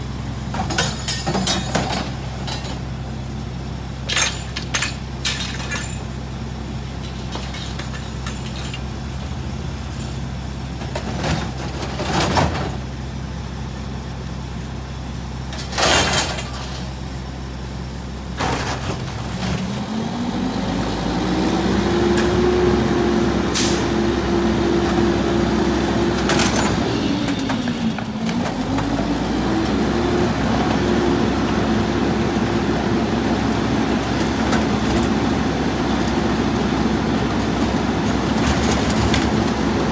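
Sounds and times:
items clanking into steel hopper: 0.6s - 2.8s, 4.1s - 6.1s, 7.0s - 8.8s, 15.6s - 17.0s, 26.2s - 29.0s
diesel engine idling: 2.0s - 12.0s.

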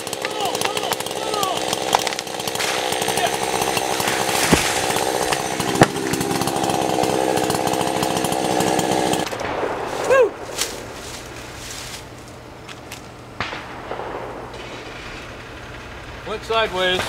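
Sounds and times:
chainsaw running: 0.0s - 9.4s
tree cracking as it falls: 0.0s - 12.3s.

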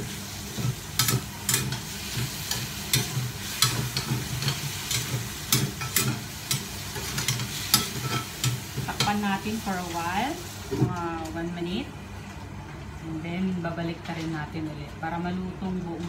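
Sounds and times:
chicken sizzling: 0.0s - 11.0s.

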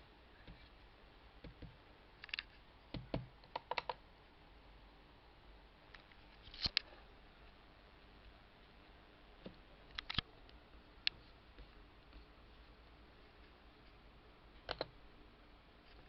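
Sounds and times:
computer mouse clicks: 1.5s - 4.0s, 9.4s - 10.3s, 14.6s - 15.0s.

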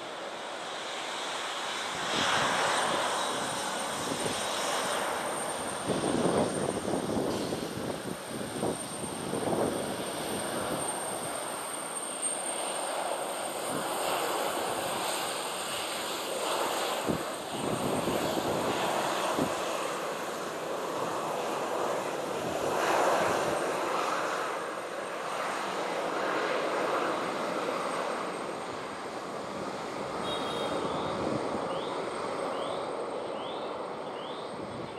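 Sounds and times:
jet engines roaring: 0.0s - 34.9s
faint high whine: 30.1s - 34.9s.

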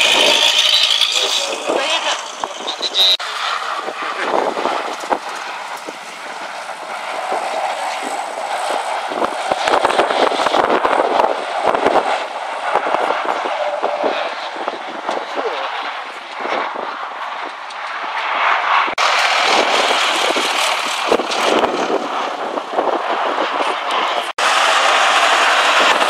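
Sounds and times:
rattling crackling noise: 0.0s - 18.2s
armoured car engine driving: 0.0s - 26.0s.

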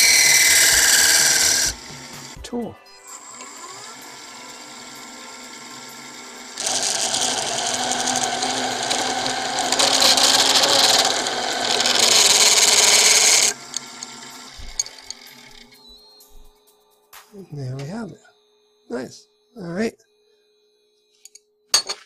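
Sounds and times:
lathe humming: 0.0s - 2.4s, 3.1s - 15.9s
tool screeching on spinning wood: 0.0s - 2.4s, 3.1s - 15.8s.

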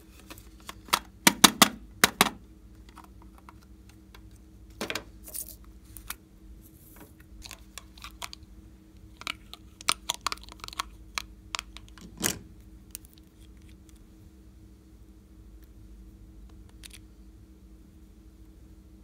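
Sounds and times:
small plastic pieces clicking: 9.2s - 12.2s.

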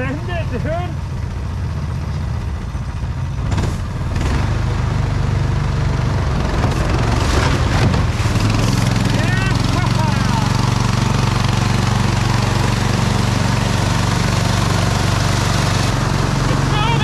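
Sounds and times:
vehicle engine running: 0.0s - 17.0s
knocks and scrapes of vehicle bumping: 3.2s - 4.4s, 6.3s - 16.2s.

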